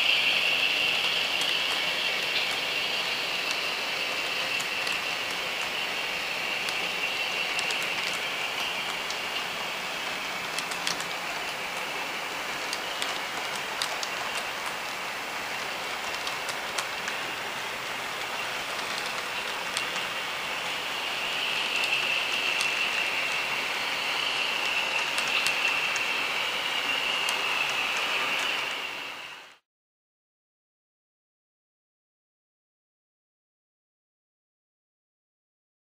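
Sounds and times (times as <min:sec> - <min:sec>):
model train motor whine: 0:00.0 - 0:29.6
wheels clicking over rail: 0:00.1 - 0:23.6.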